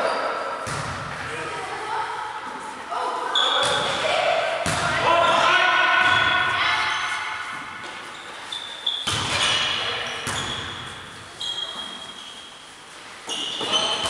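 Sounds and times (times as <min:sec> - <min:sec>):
shoes squeaking on court floor: 0:03.3 - 0:04.0, 0:06.8 - 0:14.0
volleyball being struck: 0:04.6 - 0:05.0, 0:09.0 - 0:10.8.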